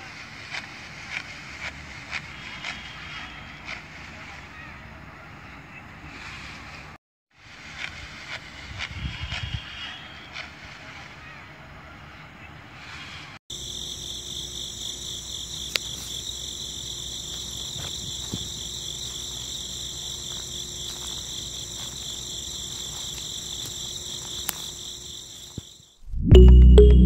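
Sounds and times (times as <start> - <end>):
crickets chirping: 13.5 - 26.0.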